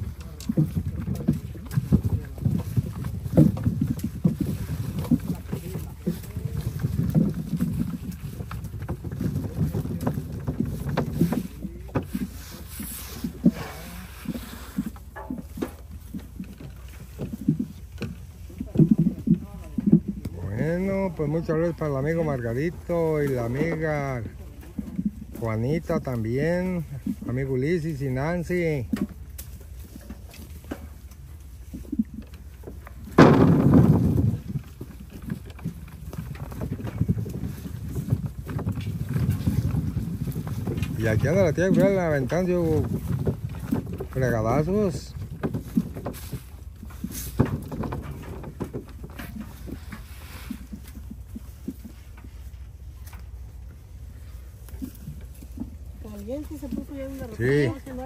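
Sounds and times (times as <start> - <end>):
peaches rolling and knocking: 0.0 - 58.0
wind rumble on microphone: 0.0 - 58.0
fruit tumbling onto table: 33.1 - 34.4.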